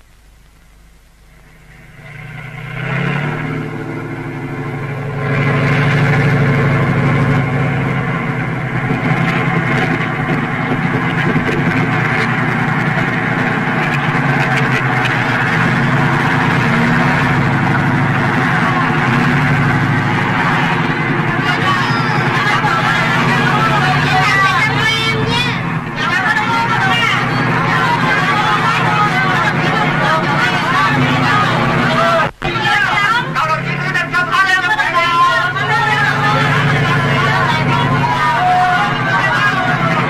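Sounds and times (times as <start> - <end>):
tank engines rumbling: 0.0 - 40.0
tank tracks clattering: 8.3 - 30.7.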